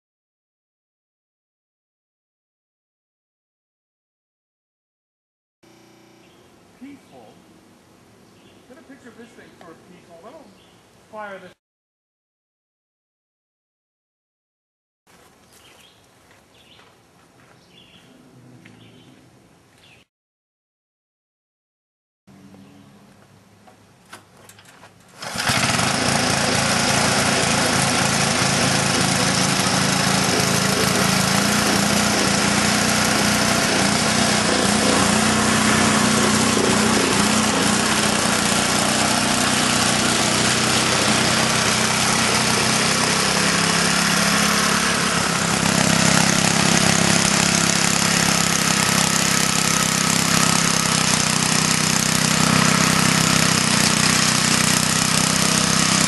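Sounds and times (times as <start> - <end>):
small engine running: 5.6 - 6.4, 24.9 - 56.0.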